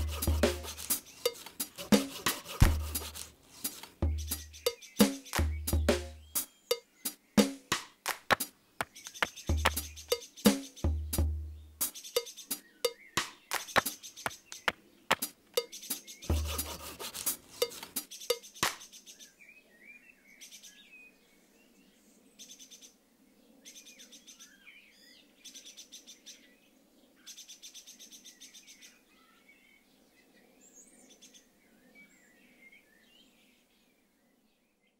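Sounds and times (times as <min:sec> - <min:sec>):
rapid ticking bursts: 0:00.0 - 0:06.4, 0:09.1 - 0:11.2, 0:13.5 - 0:18.1
small birds chirping: 0:00.0 - 0:34.9
sharp knocks: 0:07.4 - 0:09.9, 0:13.5 - 0:15.3.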